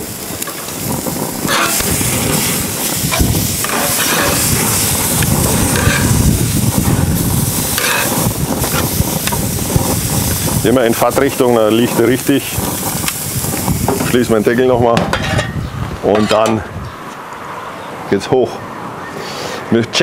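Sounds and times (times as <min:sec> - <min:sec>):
meat sizzling on grill: 0:00.0 - 0:14.8
fat flaring into flame: 0:00.0 - 0:15.0.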